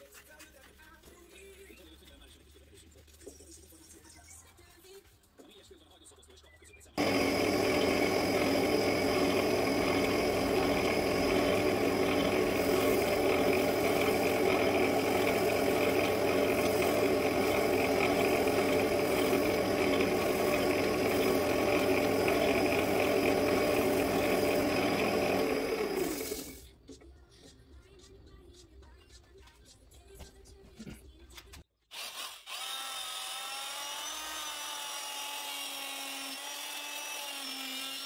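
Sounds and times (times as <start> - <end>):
wood lathe motor humming: 7.0 - 26.6.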